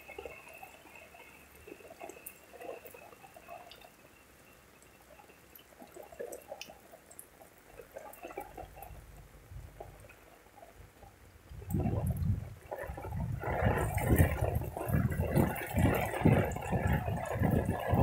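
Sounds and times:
close water drips: 0.0s - 18.0s
low rumble: 8.8s - 10.0s, 11.4s - 18.0s
heavy rain: 11.4s - 18.0s.

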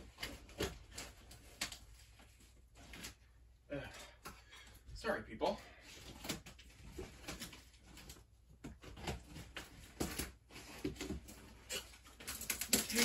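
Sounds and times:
cardboard packaging rustling: 6.0s - 13.0s.

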